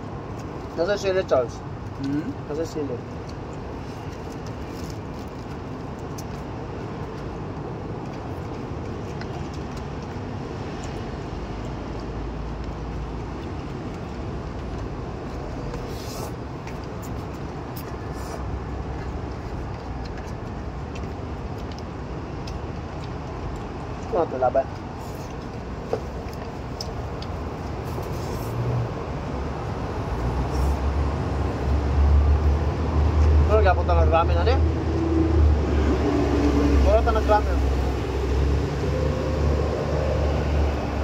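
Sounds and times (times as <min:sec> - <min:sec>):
city street traffic: 0:00.0 - 0:41.0.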